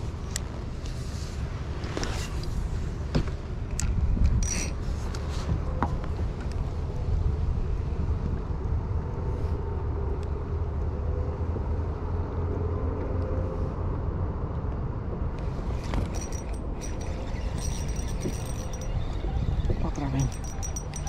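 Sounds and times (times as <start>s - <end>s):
wind rumble on microphone: 0.0s - 21.0s
fishing reel whirring: 15.6s - 21.0s
reel clicks: 15.7s - 21.0s.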